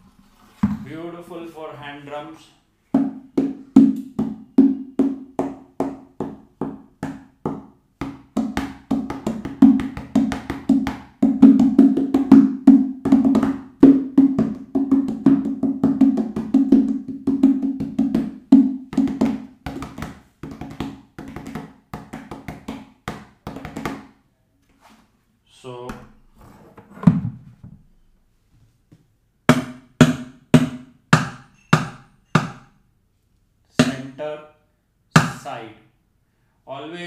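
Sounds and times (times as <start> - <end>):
hands drumming on plastic bucket: 3.0 - 24.1.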